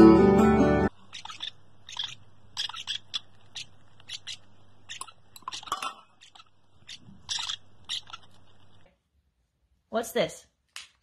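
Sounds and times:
parrot chicks chirping: 0:00.9 - 0:08.8
wet feeding sounds: 0:00.9 - 0:08.9.

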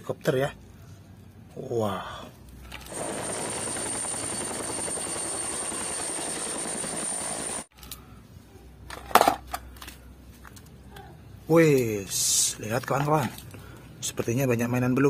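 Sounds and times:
helicopter hovering: 0:02.9 - 0:07.7.

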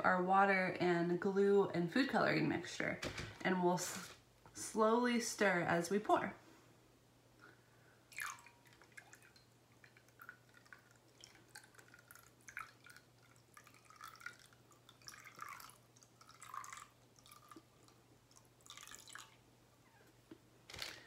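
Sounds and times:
wet dripping and squishing: 0:08.1 - 0:19.4.

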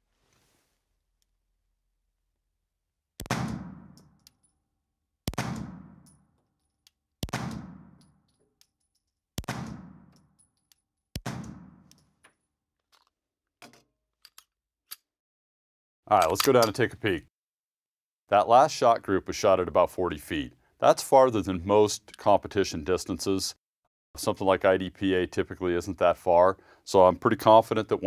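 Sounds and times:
pistol shots cracking indoors: 0:03.2 - 0:04.3, 0:05.2 - 0:06.2, 0:07.2 - 0:08.2, 0:09.4 - 0:10.2, 0:11.2 - 0:12.0.

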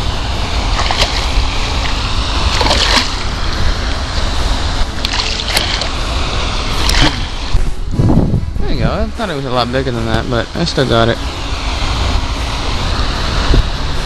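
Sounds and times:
wind on microphone: 0:00.0 - 0:14.0
fish splashing at water surface: 0:00.2 - 0:07.6.

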